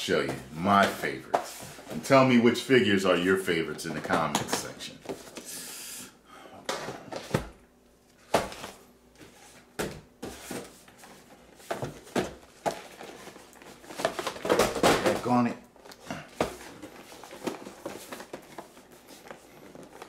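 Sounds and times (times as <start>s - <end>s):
sliding rustle of boxes: 8.5s - 14.5s, 16.3s - 20.0s.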